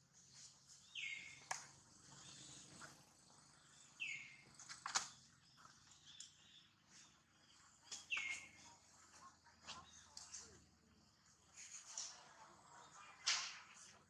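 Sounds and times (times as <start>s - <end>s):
faint outdoor hiss: 0.0s - 14.0s
sharp clicks: 4.6s - 5.2s.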